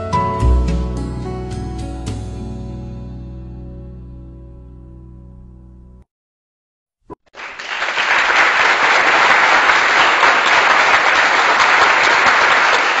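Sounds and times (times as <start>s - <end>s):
applause: 7.3s - 13.0s.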